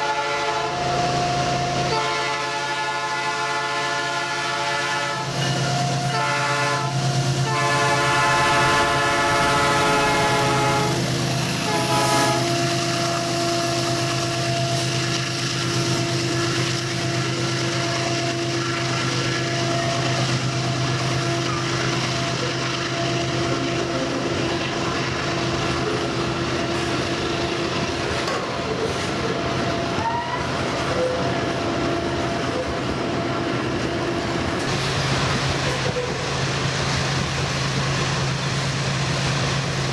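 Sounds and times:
locomotive air horn blasts: 0.0s - 14.9s
train wheels clattering on rails: 7.0s - 39.9s.

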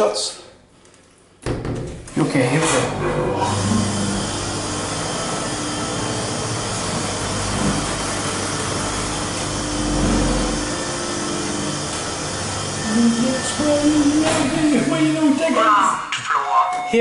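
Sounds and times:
lift motor humming: 2.8s - 16.0s.

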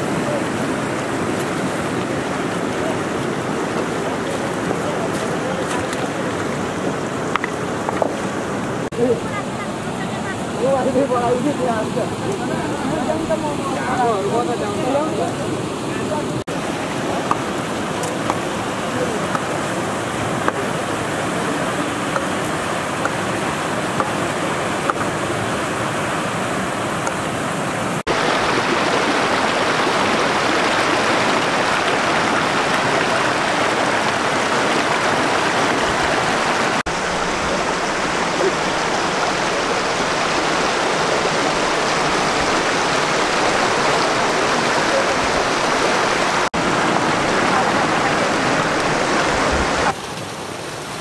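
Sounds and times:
flowing water rushing: 0.0s - 51.0s.

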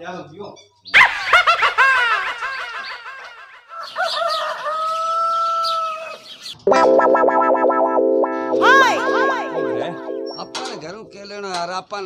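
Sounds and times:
birds chirping: 2.3s - 6.6s, 9.6s - 11.6s
rooster crowing: 3.0s - 6.3s.

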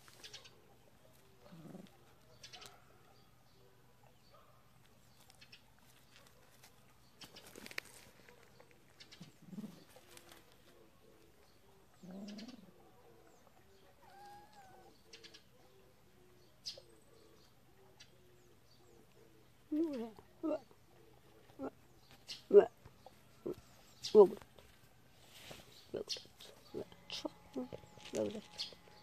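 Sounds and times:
kitten scuffling on gravel: 4.9s - 8.9s, 27.5s - 29.0s.

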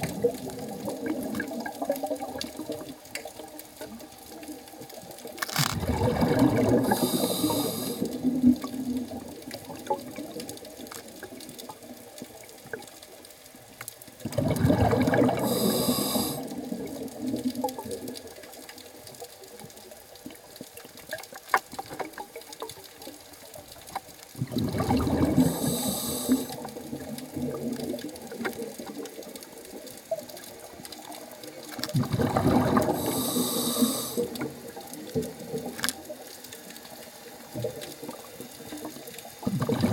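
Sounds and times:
exhaled bubbles bursting: 0.0s - 3.4s, 5.0s - 12.0s, 14.2s - 18.3s, 24.4s - 35.8s, 37.6s - 39.9s
faint underwater clicks: 0.0s - 39.9s.

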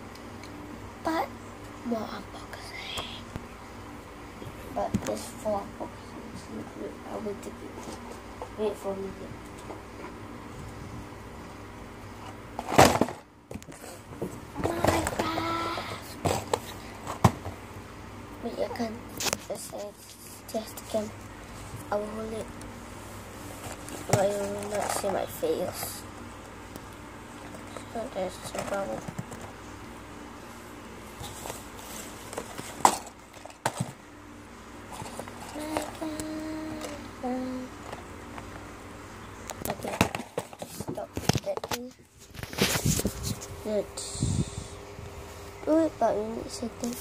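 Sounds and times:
cardboard boxes handling noise: 31.1s - 34.0s.

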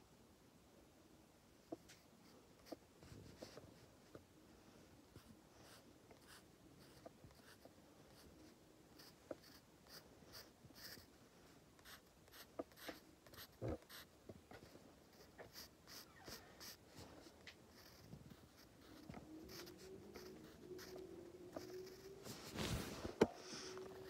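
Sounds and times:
pencil scratching on paper: 9.0s - 11.1s, 11.8s - 14.1s, 15.1s - 22.4s.

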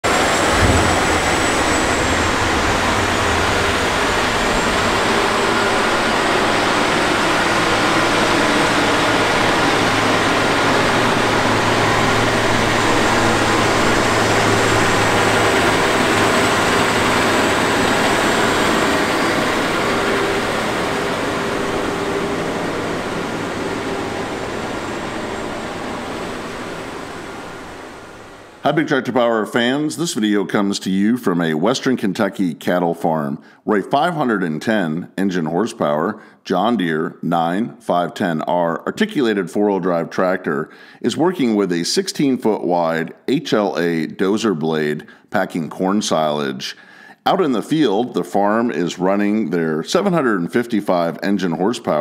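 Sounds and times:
tractor diesel engine under load: 0.0s - 29.0s.

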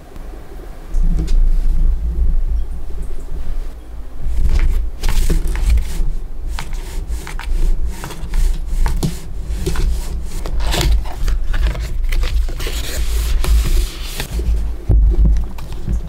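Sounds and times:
steady low rumble: 0.0s - 16.0s
food handling rubbing and scraping: 4.2s - 16.0s.

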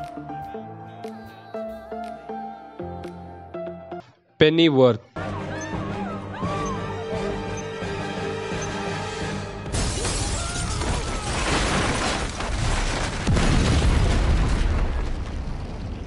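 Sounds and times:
trailer music held tone: 0.0s - 4.3s, 5.2s - 10.3s
debris crashing: 9.7s - 16.0s
explosions: 9.7s - 16.0s.

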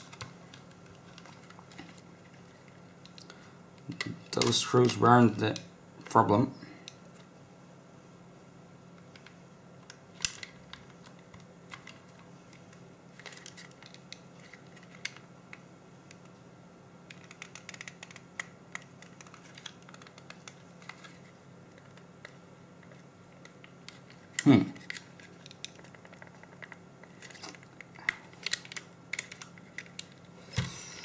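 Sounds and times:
small clicks taps and scrapes: 17.1s - 30.3s.

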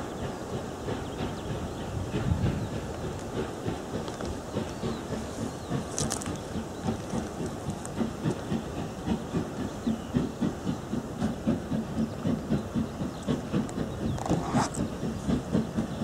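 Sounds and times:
steam locomotive chuffing: 0.0s - 16.0s.

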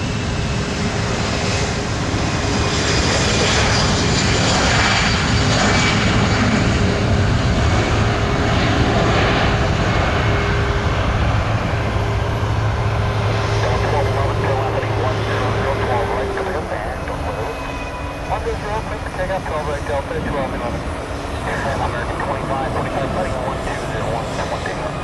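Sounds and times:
jet engines running at low thrust: 0.0s - 25.0s.

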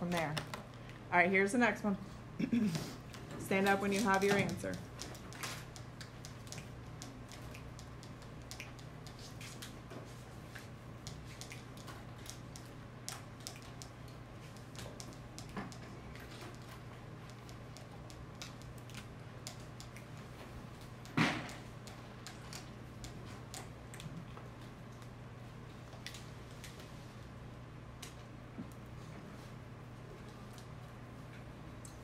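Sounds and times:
low room hum: 0.0s - 32.0s
clicks and taps at desks: 3.1s - 24.2s.

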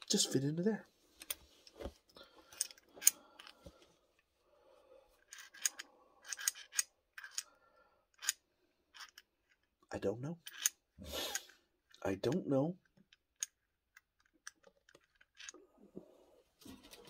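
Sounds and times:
metal parts clicking and scraping: 2.5s - 3.6s, 5.2s - 7.5s, 8.1s - 9.8s, 10.4s - 15.6s.

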